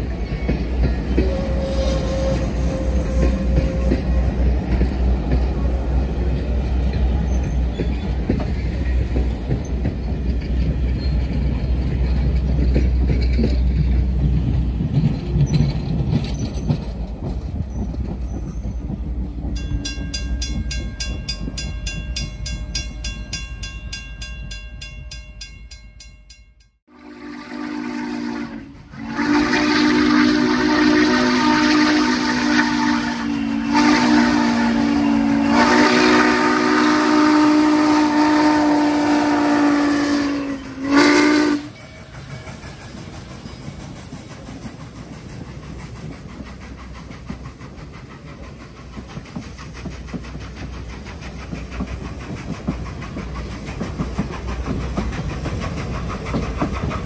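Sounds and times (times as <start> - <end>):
train coaches rumbling over rails: 0.0 - 57.0
steam whistle blasts: 1.1 - 4.4, 26.9 - 41.9
crossing bell ringing: 18.5 - 26.8, 41.6 - 43.8.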